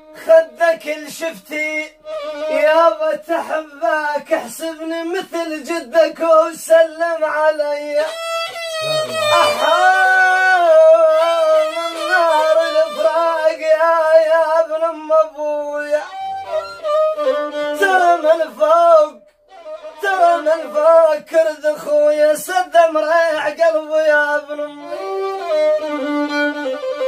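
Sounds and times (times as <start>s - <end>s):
man singing: 0.0s - 27.0s
violin playing a melody: 1.9s - 3.2s, 8.0s - 14.0s, 15.7s - 18.6s, 19.5s - 21.1s, 24.2s - 27.0s.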